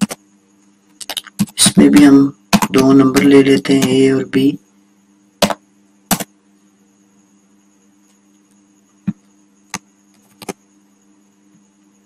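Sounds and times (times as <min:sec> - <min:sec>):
faint high whine: 0:00.0 - 0:12.0
steady low hum: 0:00.0 - 0:12.0
keyboard and mouse clicks: 0:01.0 - 0:01.6, 0:09.1 - 0:10.6.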